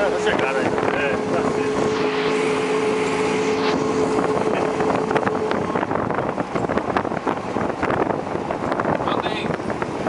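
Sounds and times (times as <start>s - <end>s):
steady hum: 0.0s - 7.2s
passing traffic: 0.0s - 10.0s
wind on microphone: 0.0s - 10.0s.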